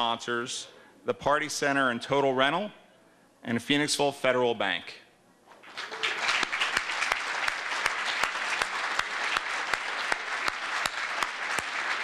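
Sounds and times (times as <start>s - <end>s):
audience applauding: 5.6s - 12.0s
loud single claps: 5.7s - 12.0s.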